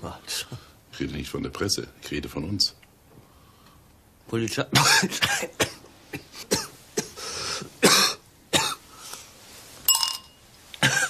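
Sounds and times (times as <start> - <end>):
drawn breath: 7.2 - 7.7
person coughing: 7.8 - 8.8, 10.8 - 11.0.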